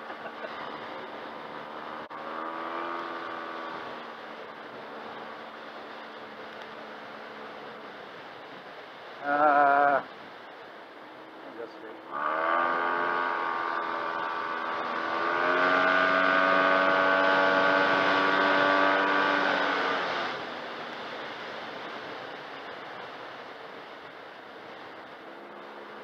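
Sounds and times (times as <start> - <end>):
wind rush: 0.0 - 26.0
scooter engine accelerating: 0.8 - 4.0, 12.1 - 20.4.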